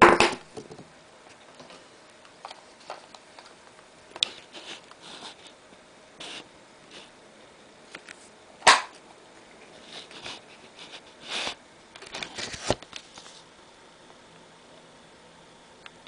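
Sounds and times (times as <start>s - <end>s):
soft hissing rustles: 9.4s - 11.7s.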